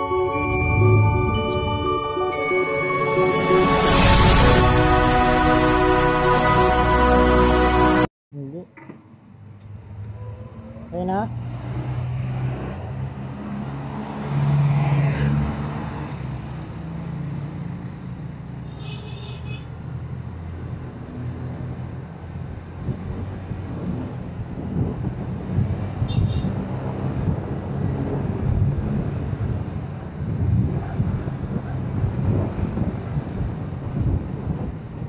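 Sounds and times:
passing motorcycle tricycle: 0:22.2 - 0:35.0
wind on microphone: 0:22.7 - 0:35.0.

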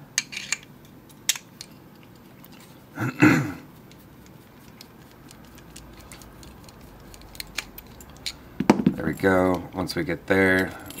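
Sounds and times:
padlock and keys rattle: 0:03.9 - 0:11.0.

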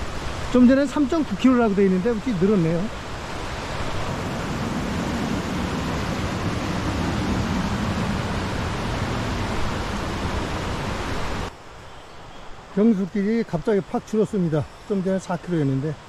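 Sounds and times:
stream rushing over rocks: 0:00.0 - 0:11.6.

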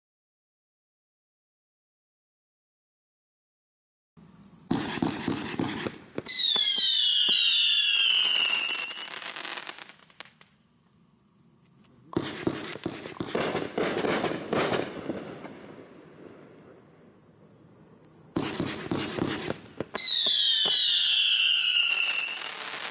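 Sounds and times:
fireworks shots and bangs: 0:04.7 - 0:07.6, 0:12.2 - 0:16.6, 0:18.3 - 0:22.9
firework whistle sliding down: 0:04.9 - 0:09.8, 0:20.0 - 0:22.9.

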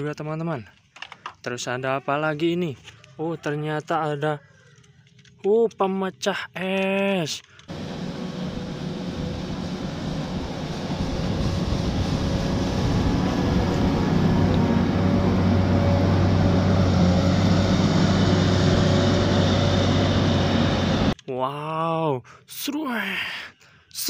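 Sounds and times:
wheel loader diesel engine: 0:07.6 - 0:21.2.

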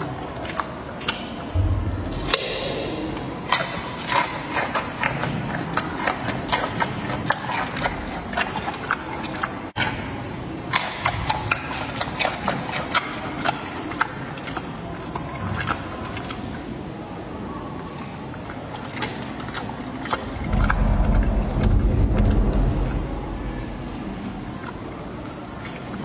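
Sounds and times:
panda chewing crunchy carrot: 0:00.3 - 0:16.4.

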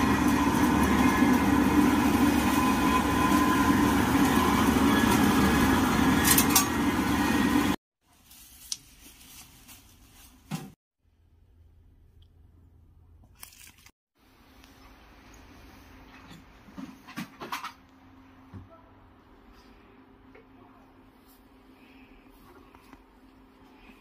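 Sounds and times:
machine droning and whining: 0:00.0 - 0:07.8.

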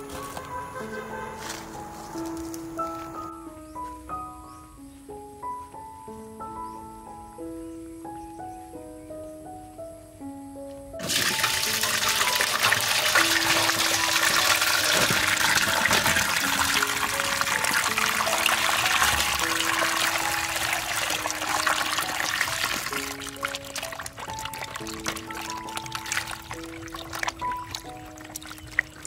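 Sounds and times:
hose water splashing in metal basin: 0:11.0 - 0:29.0.

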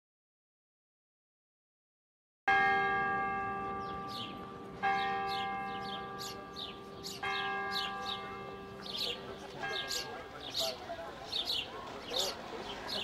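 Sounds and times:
large bell tolling: 0:02.5 - 0:12.4
small birds chirping: 0:05.0 - 0:13.0.

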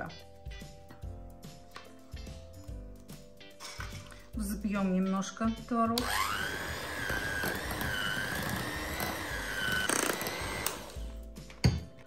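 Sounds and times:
electric hand mixer whining: 0:06.0 - 0:11.2.

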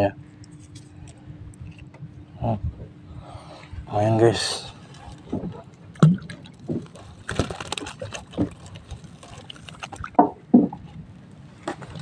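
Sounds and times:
water splashing: 0:05.1 - 0:10.5
fish knocking against boat: 0:10.1 - 0:10.8.

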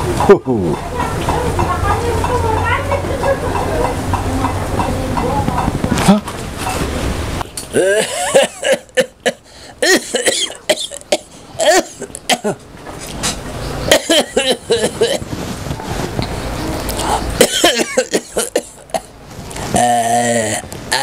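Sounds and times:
person clearing throat: 0:07.7 - 0:12.6, 0:13.9 - 0:15.2, 0:17.4 - 0:19.1, 0:19.7 - 0:21.0
person coughing: 0:07.8 - 0:12.6, 0:13.9 - 0:15.2, 0:17.4 - 0:19.1.

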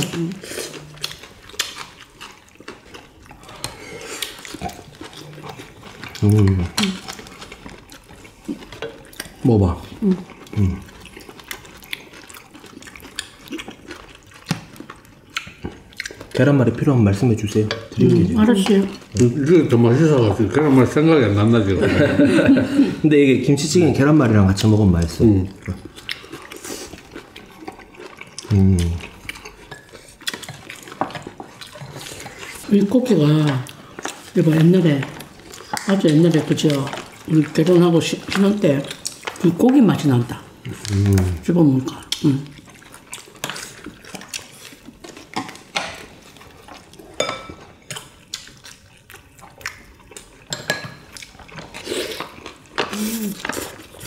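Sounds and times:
wet stew sounds: 0:00.0 - 0:54.0
utensils clinking against bowls: 0:47.2 - 0:48.0, 0:50.5 - 0:51.8.

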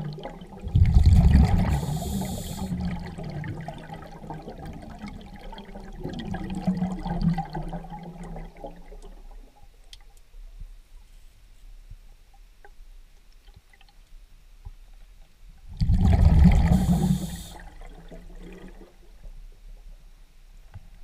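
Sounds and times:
diver's breath bubbling underwater: 0:00.1 - 0:04.9, 0:15.8 - 0:18.8.

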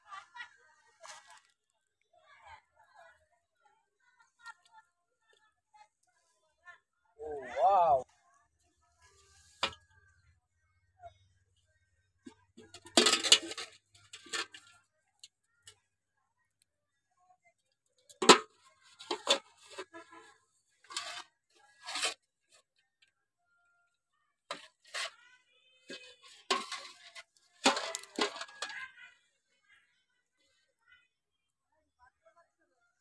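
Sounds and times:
fish flapping in metal basin: 0:25.9 - 0:28.9.

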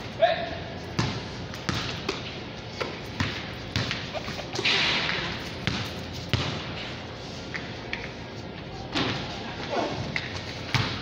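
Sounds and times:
basketball bouncing on concrete: 0:01.0 - 0:02.2, 0:02.8 - 0:04.0, 0:05.6 - 0:06.7, 0:10.7 - 0:11.0.

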